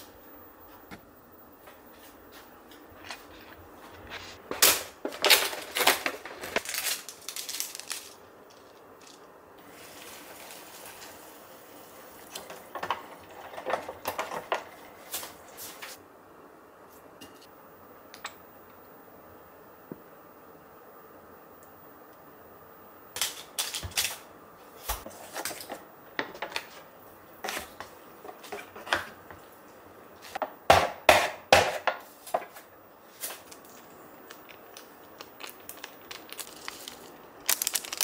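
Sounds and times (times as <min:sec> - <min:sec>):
packaging crinkling and tearing: 0:04.4 - 0:08.2, 0:33.4 - 0:38.0
hot water pouring into cup: 0:09.6 - 0:15.1.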